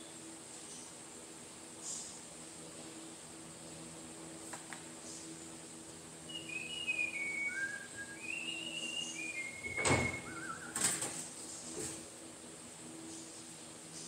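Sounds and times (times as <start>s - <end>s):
man whistling a tune: 6.3s - 10.8s.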